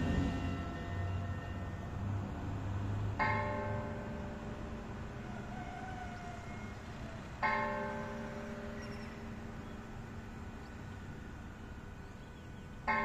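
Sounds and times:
church bell tolling: 0.0s - 2.6s, 3.2s - 5.2s, 7.4s - 10.6s, 12.8s - 13.0s.

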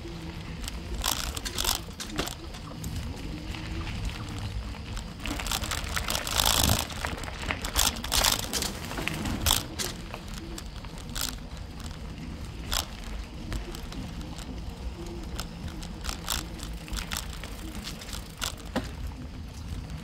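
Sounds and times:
bike crackling over bumps: 0.0s - 20.0s
bike rumbling: 0.0s - 20.0s
tyres crunching over leaves: 0.0s - 20.0s.

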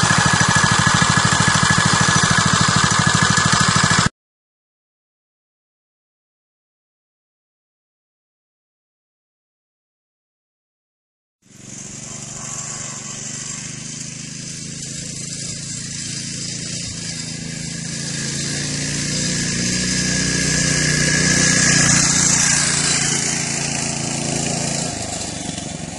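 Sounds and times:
minibike engine running: 0.0s - 4.1s, 11.5s - 25.9s.

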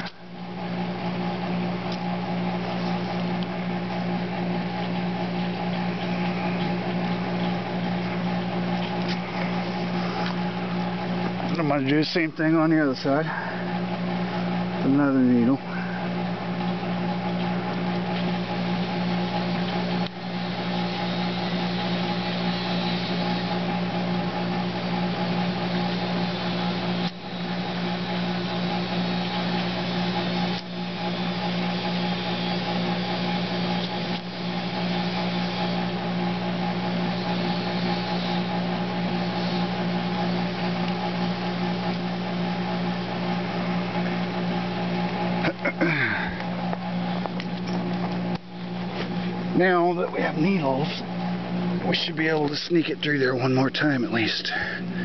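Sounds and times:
steady machine hum: 0.0s - 55.0s.

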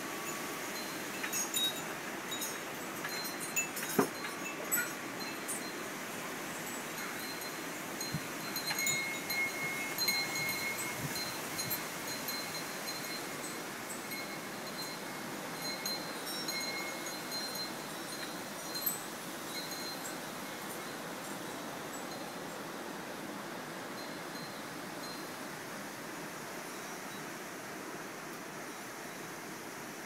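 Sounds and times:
wind hiss: 0.0s - 30.0s
wind chime ringing: 0.3s - 5.8s, 6.9s - 13.3s.

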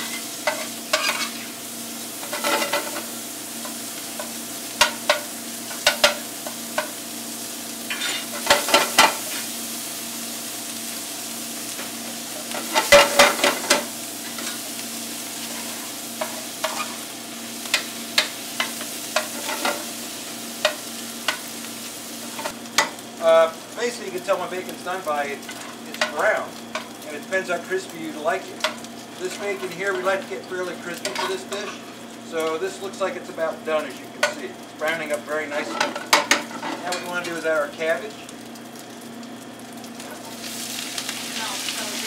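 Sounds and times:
metal spoon scraping a pan: 0.0s - 1.5s, 2.2s - 3.1s, 7.9s - 9.2s, 15.4s - 17.0s, 17.7s - 19.9s, 31.0s - 31.9s
bacon sizzling in a pan: 0.0s - 42.0s.

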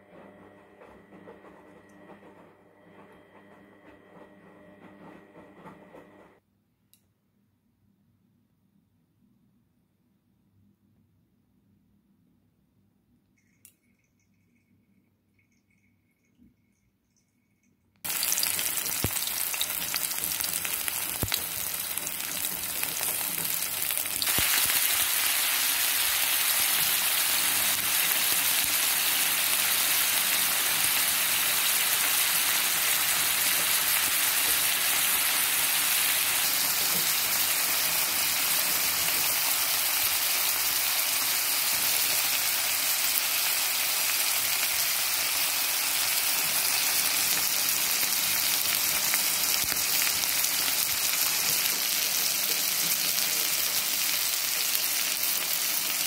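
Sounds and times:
food sizzling in hot oil: 18.0s - 56.0s.

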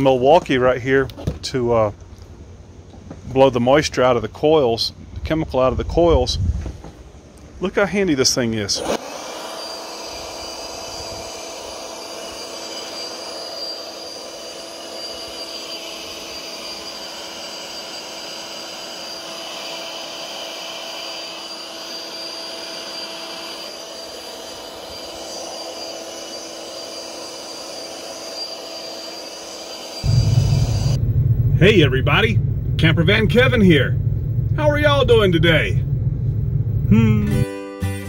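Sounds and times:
handheld blower whining: 8.8s - 37.1s.

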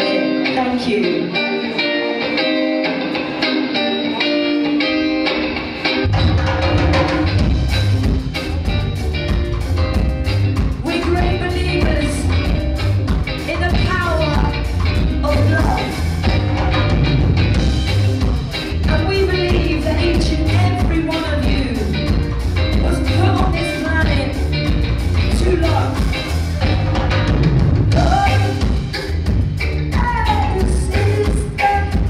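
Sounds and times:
woman singing: 0.0s - 2.0s, 10.8s - 16.1s, 18.8s - 22.2s, 22.8s - 24.5s, 25.3s - 26.1s, 27.9s - 28.8s, 29.9s - 32.0s
live rock band playing: 0.0s - 32.0s.

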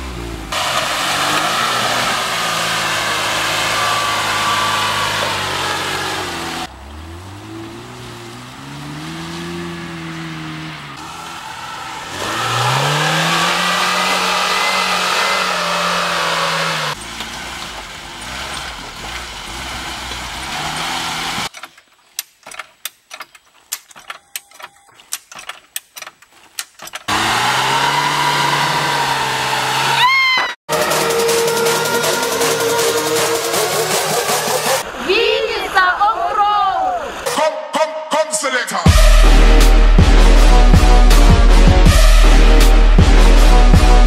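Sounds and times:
car engine revving: 0.0s - 21.5s, 27.1s - 30.0s, 30.7s - 35.0s, 38.9s - 44.0s
sharp clicks and knocks: 21.5s - 27.1s.

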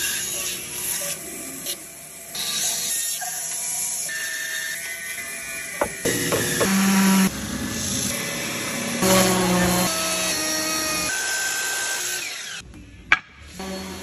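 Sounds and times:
orbital sander: 5.8s - 12.6s.

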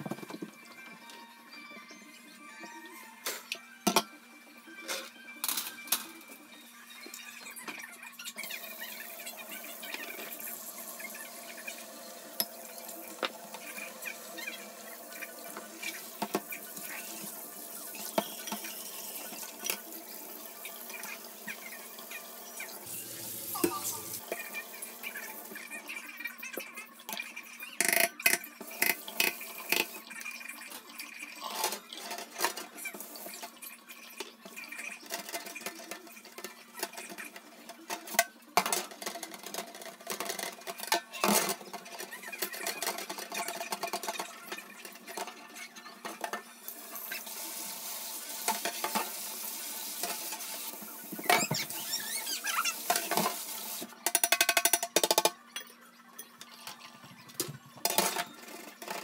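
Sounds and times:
dishes and cutlery clattering: 3.2s - 4.1s, 31.4s - 46.5s, 54.0s - 59.0s.

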